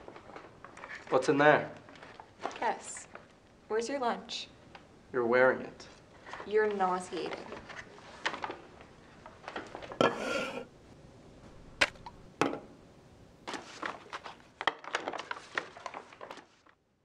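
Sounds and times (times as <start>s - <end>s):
dishes knocking on wooden table: 10.0s - 10.7s.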